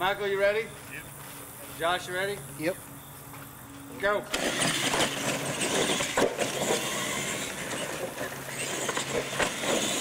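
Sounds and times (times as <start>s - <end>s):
toy truck motors whirring: 4.3s - 10.0s.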